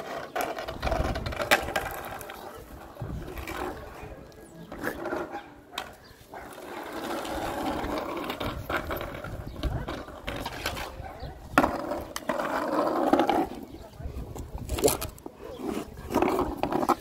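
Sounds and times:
skateboard wheels on asphalt: 0.0 - 17.0
skateboard knocks: 0.1 - 2.4.

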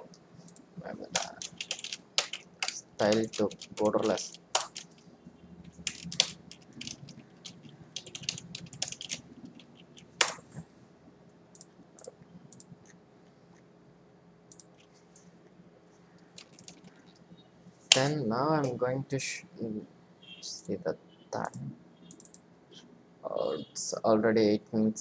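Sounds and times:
computer keyboard typing: 0.5 - 5.0, 5.6 - 10.4, 14.5 - 14.9, 16.3 - 17.2, 22.1 - 22.4.

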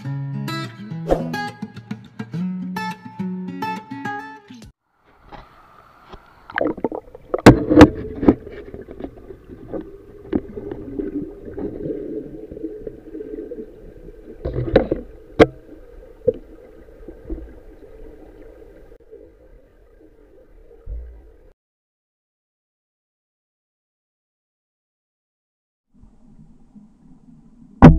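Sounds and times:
underwater knocks and clicks: 6.5 - 17.6.

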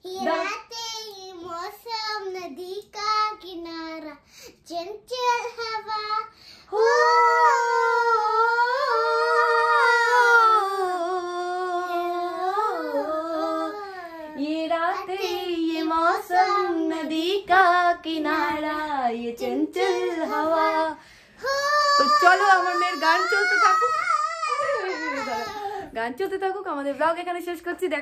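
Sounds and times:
child singing: 0.0 - 25.6.

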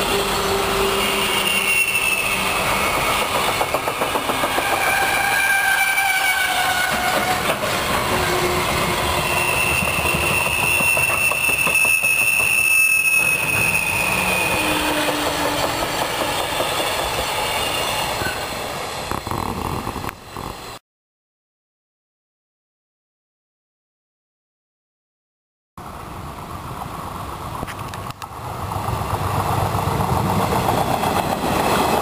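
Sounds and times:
train wheels squealing: 0.0 - 19.1
train wheels clattering: 2.6 - 5.6, 6.8 - 18.4.

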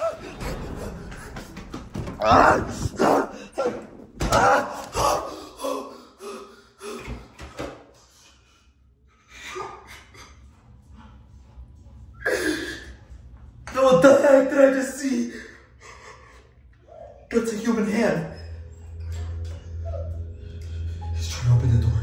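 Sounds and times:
low thump: 0.3 - 3.5.

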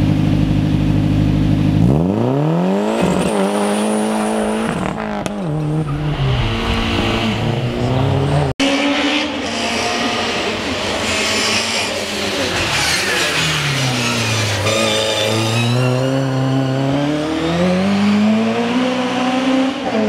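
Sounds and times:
engine holding steady pitch: 0.0 - 2.0
car engine revving through gears: 1.8 - 20.0.

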